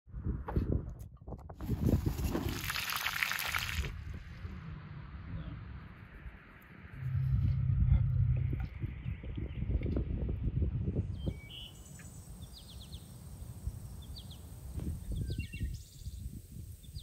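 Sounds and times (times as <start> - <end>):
low outdoor rumble: 3.9 - 11.1
small birds chirping: 11.1 - 17.0.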